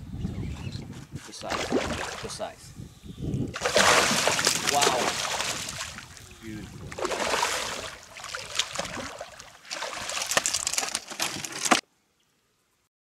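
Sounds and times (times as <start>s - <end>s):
fish thrashing water splashing: 1.5s - 2.3s, 3.6s - 6.2s, 6.8s - 11.1s.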